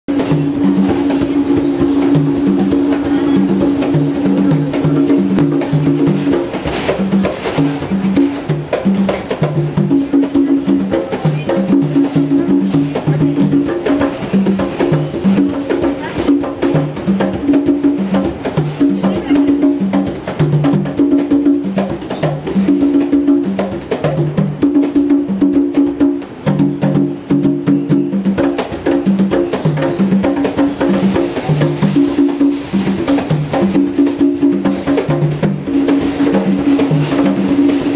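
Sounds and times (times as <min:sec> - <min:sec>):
hand drums beaten with palms: 0:00.1 - 0:37.9.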